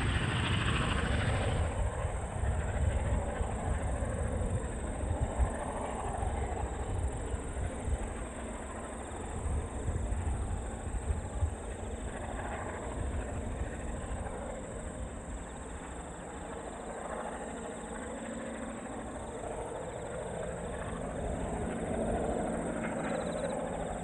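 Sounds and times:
train wheels rumbling on rails: 0:00.0 - 0:08.8
diesel locomotive drone: 0:00.0 - 0:24.0.

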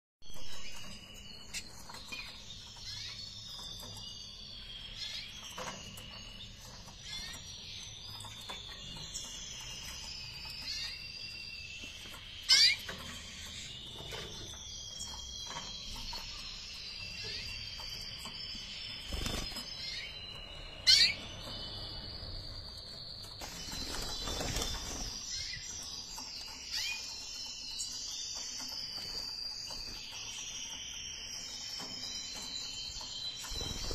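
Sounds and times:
canaries chirping and twittering: 0:00.2 - 0:33.9
sharp loud bird calls: 0:09.6 - 0:22.5.

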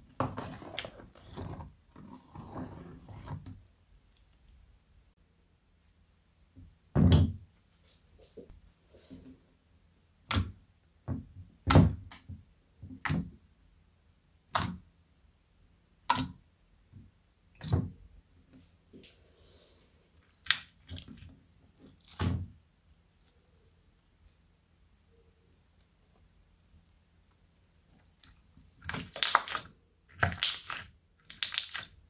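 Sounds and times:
slime popping: 0:28.1 - 0:32.0.

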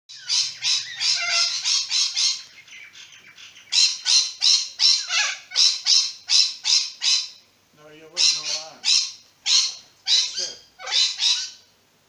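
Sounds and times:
cockatoo screeching: 0:00.1 - 0:02.5, 0:03.7 - 0:07.4, 0:08.1 - 0:11.7.

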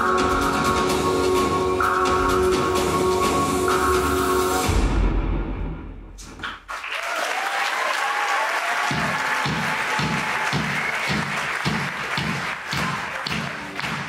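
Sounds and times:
audience applauding: 0:06.3 - 0:14.0.

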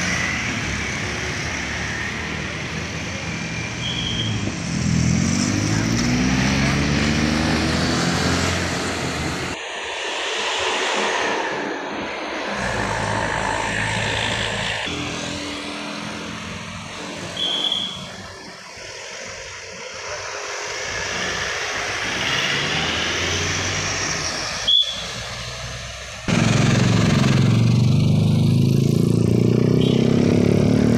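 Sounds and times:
motorcycle and car engines: 0:00.0 - 0:30.9
high whistle blasts: 0:03.7 - 0:04.5, 0:17.2 - 0:18.4, 0:24.6 - 0:25.3.

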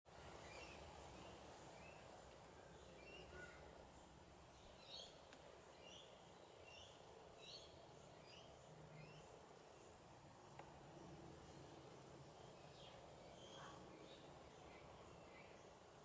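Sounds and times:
faint bird chirps: 0:00.4 - 0:09.9, 0:12.3 - 0:15.8.

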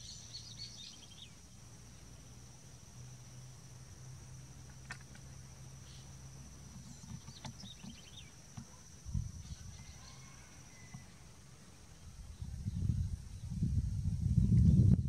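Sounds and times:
bird chirps: 0:00.0 - 0:01.5, 0:06.7 - 0:08.8.

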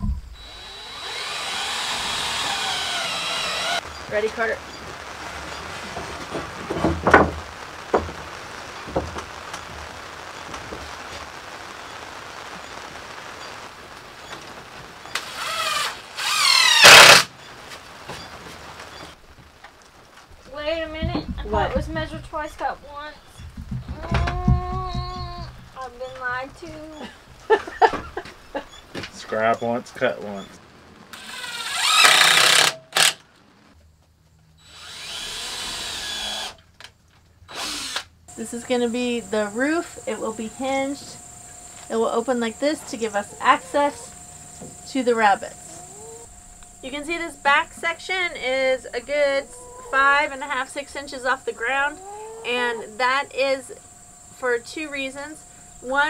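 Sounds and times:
cordless drill motor whining: 0:00.4 - 0:03.8, 0:15.1 - 0:17.3, 0:31.1 - 0:33.1, 0:34.6 - 0:36.6, 0:37.5 - 0:38.1.

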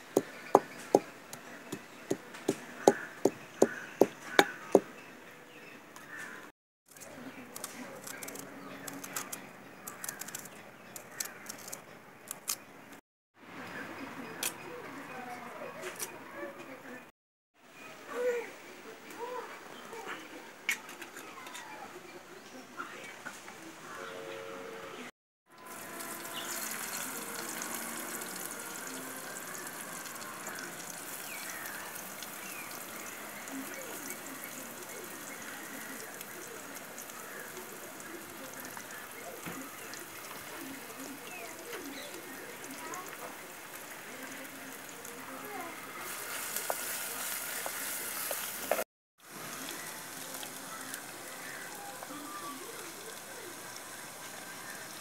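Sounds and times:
birds calling: 0:00.0 - 0:06.5
food sizzling and crackling in oil: 0:25.6 - 0:55.0.

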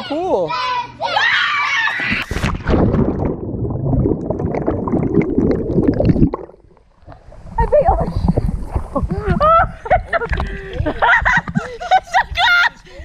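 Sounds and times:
person splashing into pool: 0:02.0 - 0:06.6
underwater churning and bubbling: 0:02.4 - 0:11.8.

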